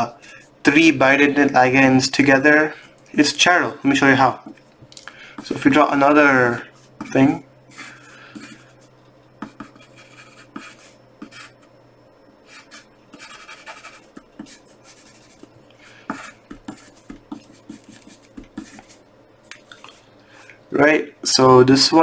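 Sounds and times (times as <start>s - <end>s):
pencil scratching on paper: 6.8s - 11.7s, 12.5s - 19.0s
pencil lead tapping paper: 7.0s - 8.7s, 9.4s - 11.6s, 12.5s - 15.5s, 16.1s - 19.0s.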